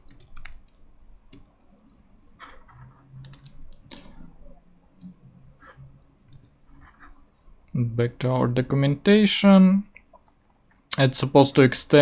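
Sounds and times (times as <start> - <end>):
keyboard and mouse clicks: 0.0 - 1.6, 2.4 - 4.2, 6.2 - 7.1
faint high-pitched whine: 0.0 - 12.0.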